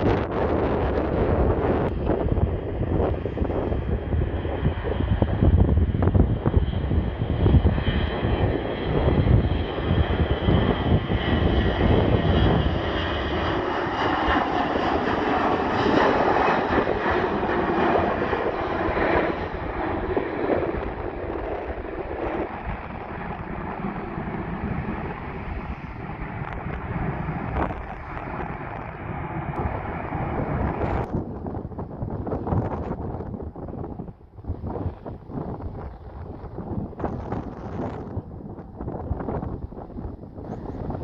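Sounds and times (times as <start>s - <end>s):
jet engines roaring at takeoff: 0.0s - 41.0s
wind buffeting microphone: 0.0s - 41.0s.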